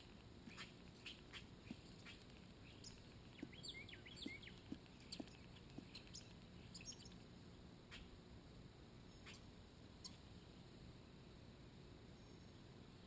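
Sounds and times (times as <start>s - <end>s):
bird pecking at a dish: 0.0s - 7.2s
faint bird chirps: 0.0s - 7.2s, 7.9s - 8.2s, 9.1s - 10.6s.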